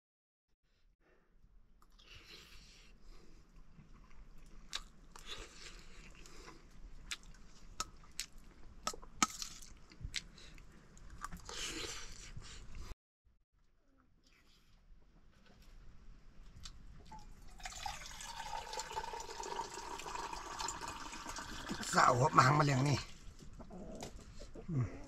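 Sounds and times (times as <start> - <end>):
close chewing and mouth sounds: 1.8 - 12.9, 14.2 - 17.3.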